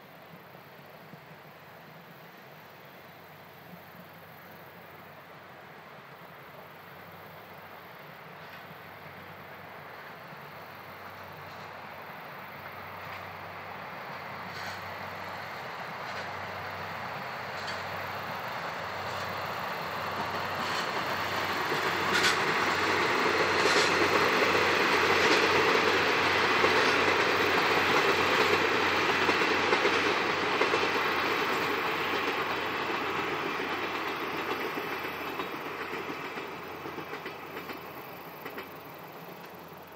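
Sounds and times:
diesel train passing: 0.0 - 39.9
wheels clicking over rail joints: 10.9 - 39.9.

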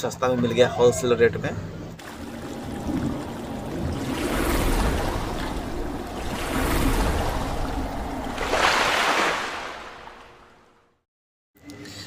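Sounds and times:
water splashing and rushing: 2.0 - 11.0.

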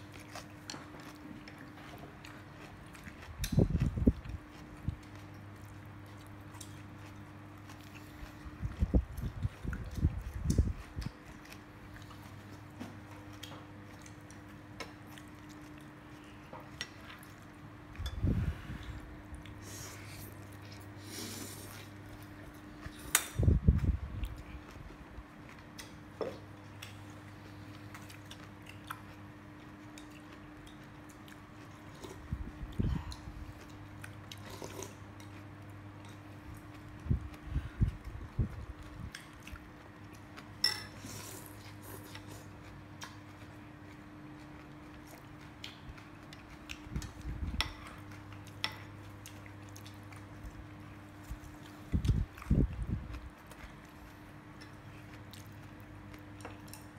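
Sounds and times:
steady low hum: 0.0 - 56.9
spoon and chopsticks clinking on bowl: 40.6 - 41.0.

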